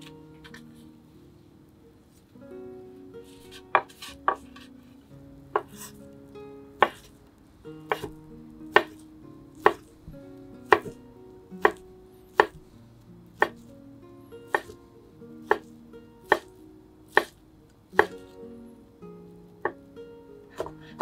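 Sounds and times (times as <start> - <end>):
soft plucked background music: 0.0 - 21.0
knife cutting on board: 14.5 - 14.8.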